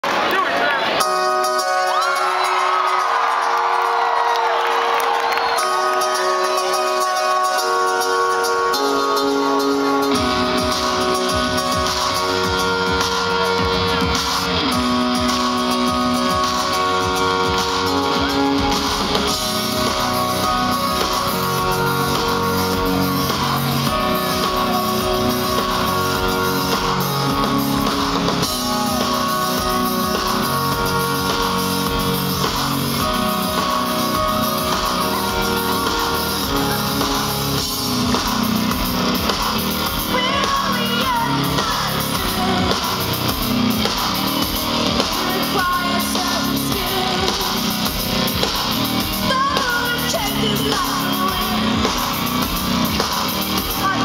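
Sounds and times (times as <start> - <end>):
live band playing: 0.1 - 54.0
lead singer singing: 40.0 - 43.4, 44.9 - 48.0, 49.0 - 52.2.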